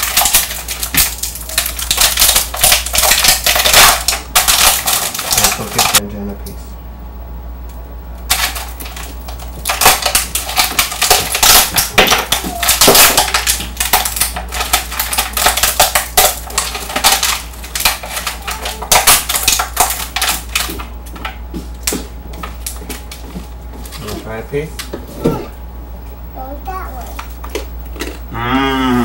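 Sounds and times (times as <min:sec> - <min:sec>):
glass candy cracking: 0:00.0 - 0:06.0, 0:08.2 - 0:23.1.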